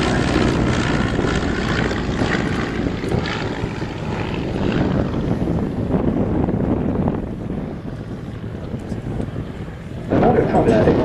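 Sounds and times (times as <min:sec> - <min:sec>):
biplane engine and propeller: 0:00.0 - 0:11.0.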